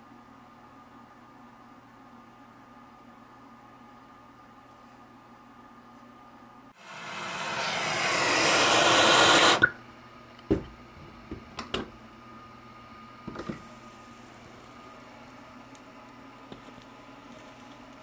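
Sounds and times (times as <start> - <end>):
torch flame hissing: 6.8 - 9.7
flame cutting off with a pop: 6.8 - 9.8.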